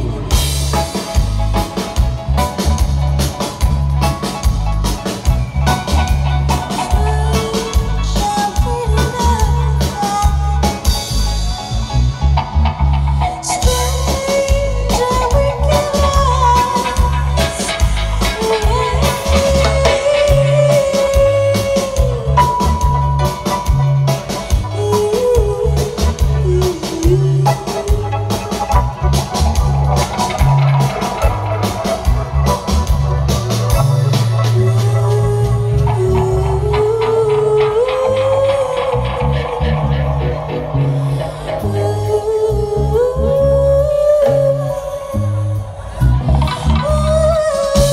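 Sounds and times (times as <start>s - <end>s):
heavy bass line: 0.0s - 47.9s
reggae band playing: 0.0s - 47.9s
woman singing: 5.7s - 11.1s, 13.3s - 28.8s, 34.4s - 47.9s.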